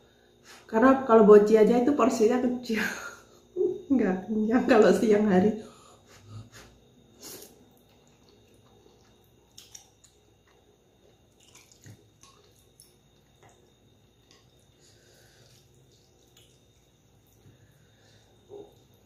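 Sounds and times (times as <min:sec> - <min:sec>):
noodles slurped and chewed: 0:07.3 - 0:17.4.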